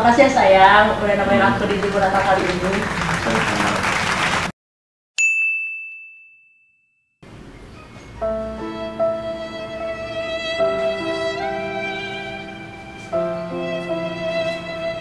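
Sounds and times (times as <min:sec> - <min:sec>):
bright ding: 0:05.2 - 0:07.0
soft music: 0:08.0 - 0:15.0.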